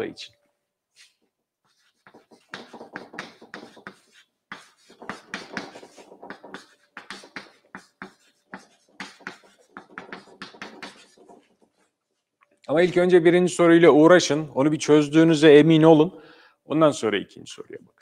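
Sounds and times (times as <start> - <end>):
chalk tapping and scratching: 0.9 - 12.2.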